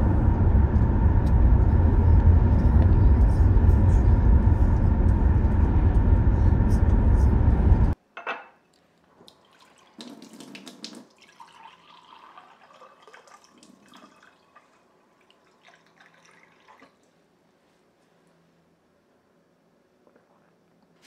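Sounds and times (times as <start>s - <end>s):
car road noise: 0.0s - 8.0s
kitchen tap running: 9.3s - 14.7s.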